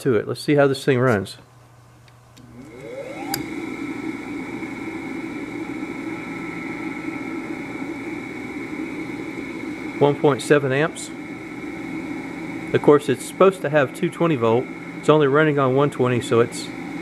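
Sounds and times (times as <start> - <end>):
electric motor whining: 2.4 - 15.3
relay click: 3.2 - 3.6.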